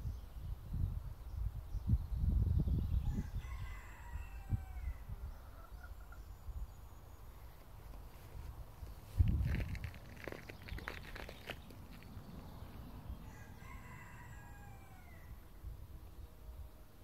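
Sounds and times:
rooster crowing: 3.1 - 5.1, 13.2 - 15.4.

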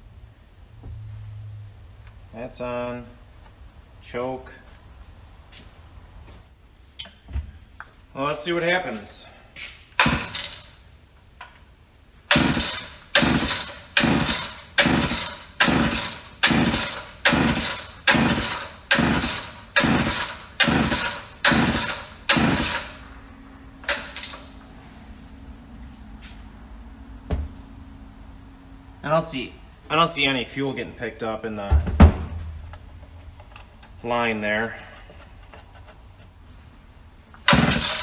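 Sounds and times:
chainsaw engine turning over: 12.3 - 23.0, 37.5 - 38.0
chainsaw recoil starter pulls: 12.4 - 23.0, 37.5 - 38.0.

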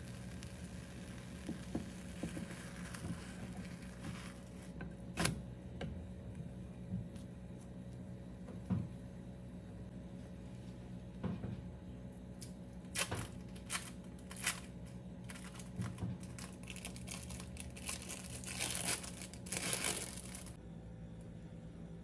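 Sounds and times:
plastic wrapper crinkling: 12.9 - 20.6.

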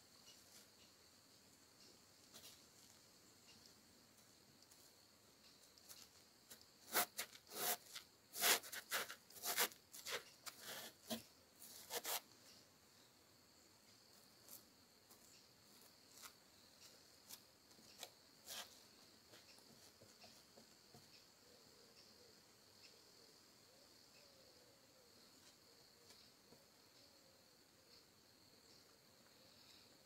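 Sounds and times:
faint high-pitched hiss: 0.0 - 30.0
socked feet rubbing on wood: 5.9 - 12.3, 17.3 - 20.7.

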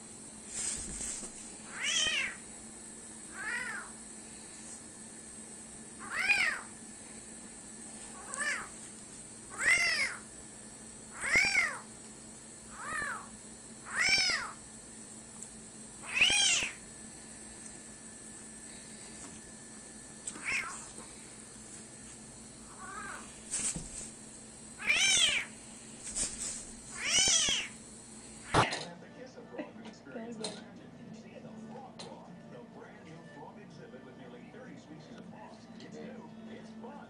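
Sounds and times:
kitten meowing: 1.7 - 2.4, 3.3 - 3.9, 6.0 - 6.7, 8.2 - 8.7, 9.5 - 10.2, 11.2 - 11.9, 12.7 - 13.3, 13.9 - 14.6, 16.0 - 16.8, 20.3 - 21.0, 22.7 - 23.3, 24.8 - 25.5, 26.9 - 27.8.

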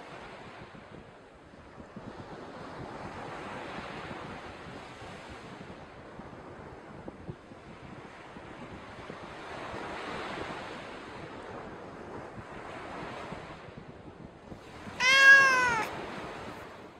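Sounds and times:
loud drawn-out animal call: 15.0 - 15.9.

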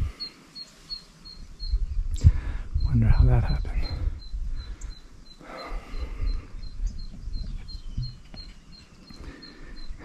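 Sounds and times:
wind on microphone: 1.4 - 5.0, 5.8 - 8.8.

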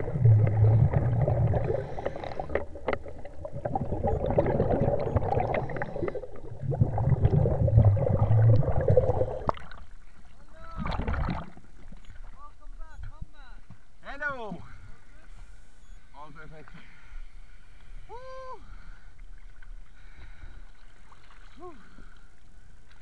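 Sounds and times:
muffled water sloshing: 0.0 - 12.8, 19.2 - 23.0.

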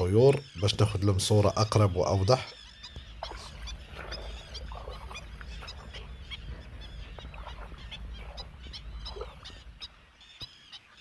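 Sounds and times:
wetland birds calling: 0.0 - 11.0
steady low rumble: 2.7 - 10.3.

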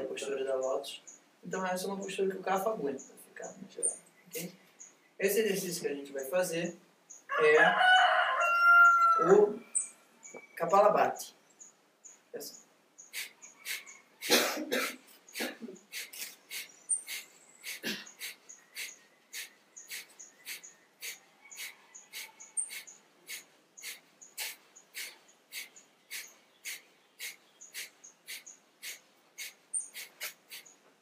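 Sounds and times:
forceful breath puffs through nose: 13.1 - 14.4, 15.3 - 30.8.

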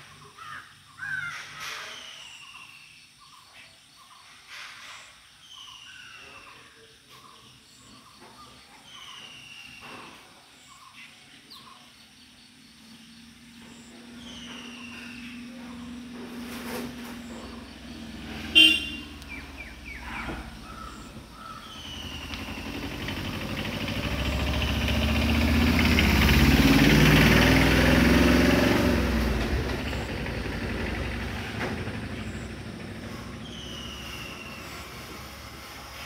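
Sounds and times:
vehicle passing by rumbling: 12.8 - 36.0.

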